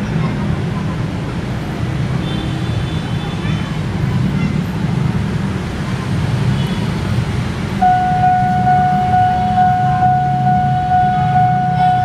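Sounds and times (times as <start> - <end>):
electric train rumbling: 7.8 - 12.0
high-pitched warning tone: 7.8 - 12.0.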